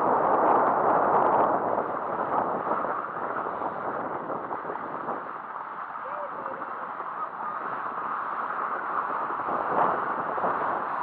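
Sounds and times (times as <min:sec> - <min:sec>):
air rushing past microphone: 0:00.0 - 0:11.0
skis sliding over snow: 0:00.0 - 0:11.0.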